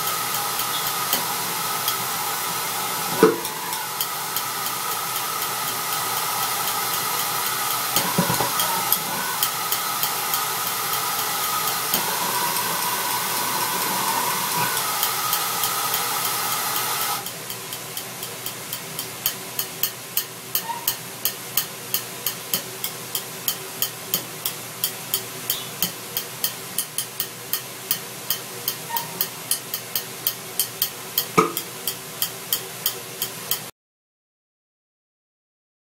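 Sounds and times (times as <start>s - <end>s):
air rushing hiss: 0.0s - 17.3s.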